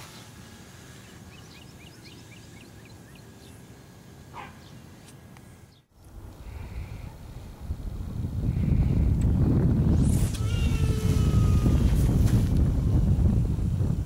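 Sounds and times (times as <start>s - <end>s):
birds chirping: 0.1s - 7.2s
wind rumble on microphone: 6.0s - 14.0s.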